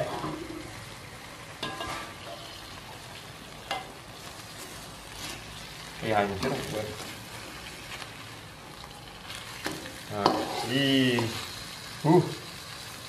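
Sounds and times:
fish sizzling in a wok: 0.0 - 13.0
metal spatula scraping a pan: 1.6 - 2.6, 9.5 - 11.4.

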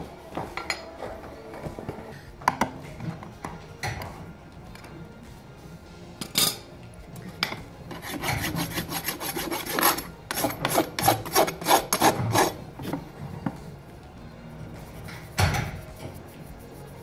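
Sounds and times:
rasp scraping hoof: 7.9 - 13.0.

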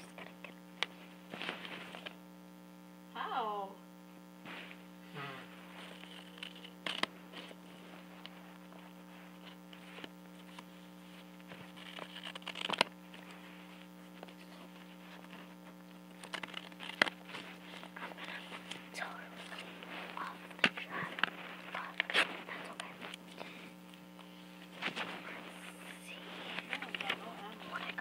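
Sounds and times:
steady electrical hum: 0.0 - 28.0
paper rustling: 1.3 - 2.1, 5.7 - 23.6, 24.2 - 28.0
scissors cutting paper: 11.8 - 12.9, 16.1 - 18.8.

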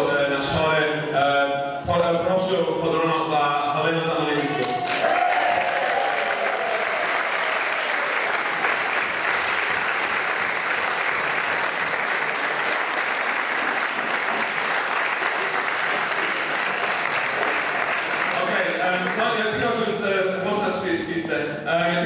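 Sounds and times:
audience applauding: 4.4 - 19.4.

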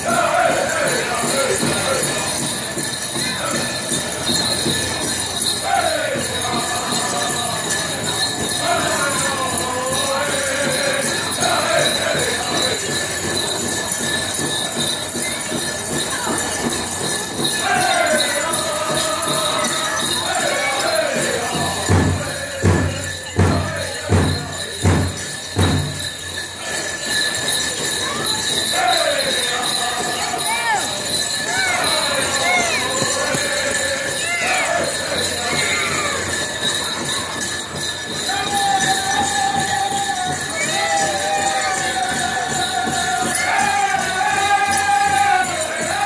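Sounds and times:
group chant singing: 0.0 - 2.2, 5.6 - 13.1, 17.6 - 24.5, 28.0 - 36.3, 38.3 - 46.0
dancers' bells jingling: 0.0 - 46.0
heavy low drum beats: 0.0 - 46.0.

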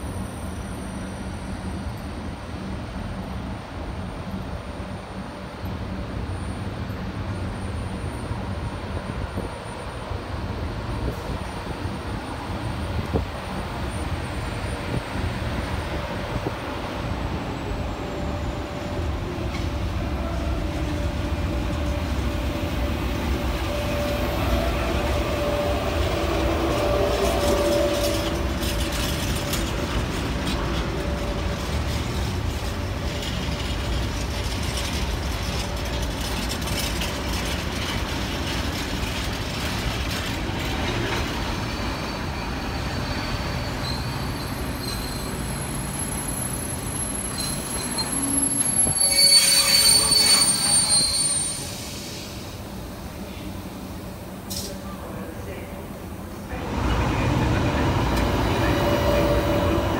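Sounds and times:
electric locomotive hum: 0.0 - 59.9
train wagons clicking over rail joints: 26.0 - 41.7.

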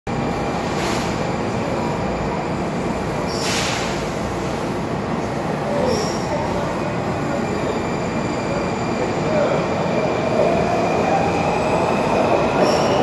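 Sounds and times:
short hiss: 3.3 - 4.1.

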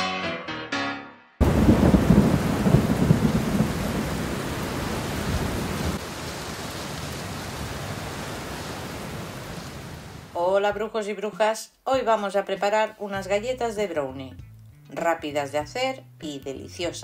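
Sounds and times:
thunder rumble: 1.4 - 10.3
heavy rain: 1.4 - 10.4.

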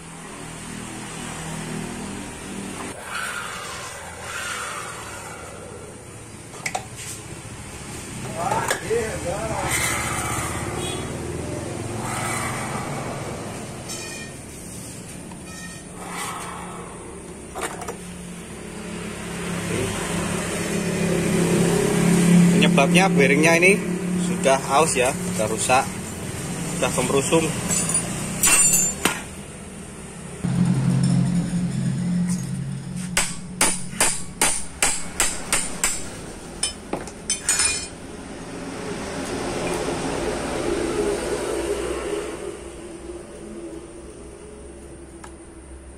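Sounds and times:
hammer striking metal spanner: 27.6 - 29.3, 33.1 - 38.0
steady low rumble: 30.4 - 33.6.

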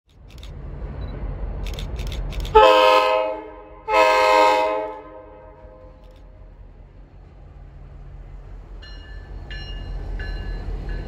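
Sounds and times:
low rumble of train: 0.1 - 11.0
locomotive air horn blasts: 2.5 - 6.0.

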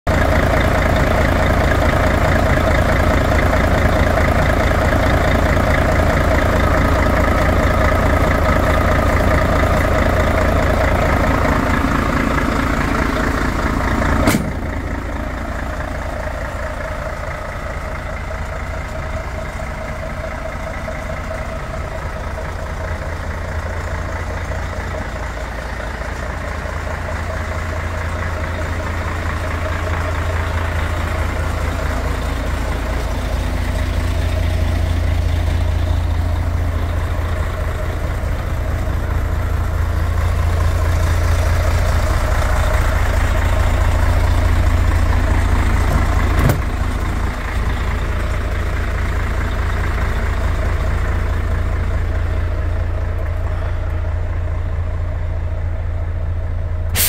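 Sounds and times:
diesel engine idling: 0.0 - 57.0
sharp click: 14.2 - 14.6.

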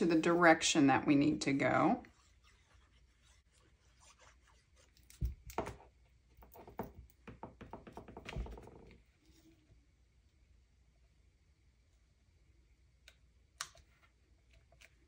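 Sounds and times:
paper rubbing and rustling: 2.1 - 5.3.

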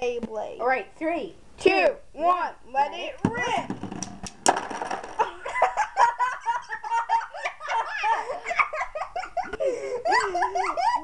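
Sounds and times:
children laughing: 5.2 - 11.0.

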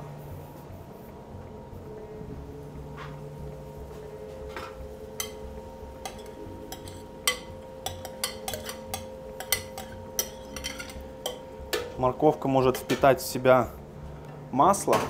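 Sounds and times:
steady hum: 0.0 - 15.0
metal spoon clinking on glass bowl: 6.0 - 11.9.

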